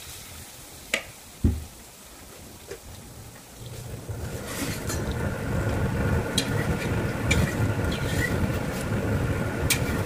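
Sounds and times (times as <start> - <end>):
batter sizzling in hot oil: 0.0 - 1.8, 3.3 - 10.0
oil popping and crackling: 2.6 - 10.0
low rumble: 3.6 - 10.0.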